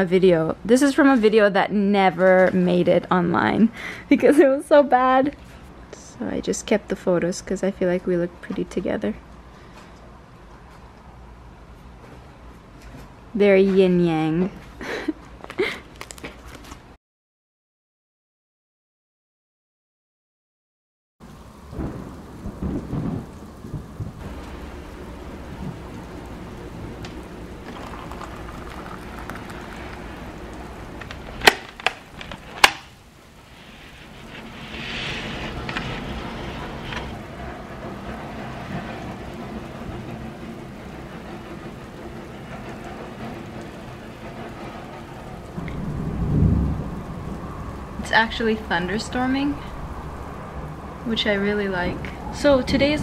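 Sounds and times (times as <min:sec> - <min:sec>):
steady rain: 0:02.2 - 0:07.0, 0:14.7 - 0:16.2, 0:21.2 - 0:53.0
thunder rumbles: 0:21.2 - 0:53.0.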